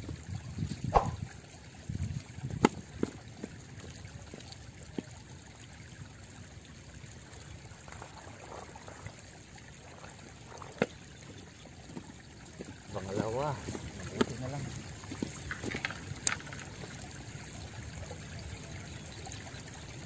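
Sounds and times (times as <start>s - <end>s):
river water splashing: 0.9s - 1.2s, 4.2s - 19.9s.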